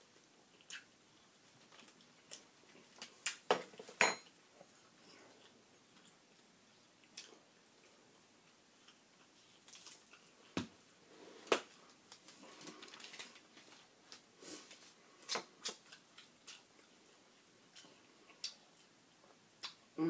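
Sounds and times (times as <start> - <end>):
chewing and lip smacking: 0.5 - 3.4.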